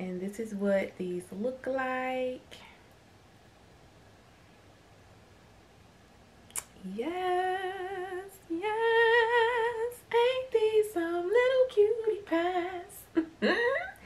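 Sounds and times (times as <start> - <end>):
woman singing: 6.6 - 14.0.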